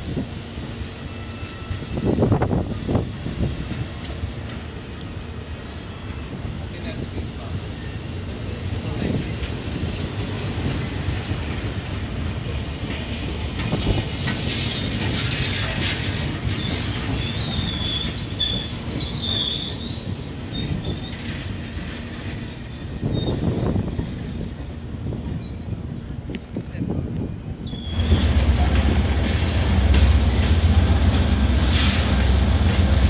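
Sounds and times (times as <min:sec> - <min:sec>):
train wheels rumbling on rail: 0:00.0 - 0:33.0
high wheel squeal: 0:15.2 - 0:29.6.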